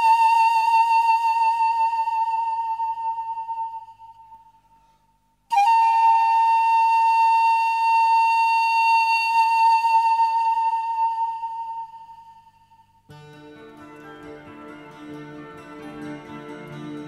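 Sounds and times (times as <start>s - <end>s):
flute long notes: 0.0s - 4.6s, 5.5s - 13.0s.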